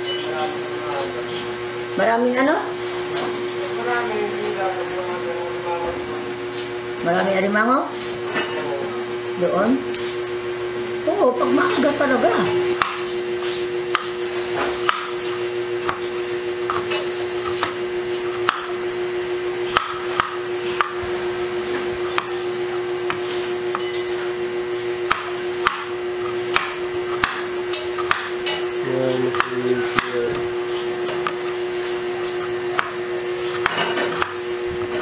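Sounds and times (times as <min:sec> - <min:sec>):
steady hum: 0:00.0 - 0:35.0
knife tapping cutting board: 0:29.3 - 0:30.4.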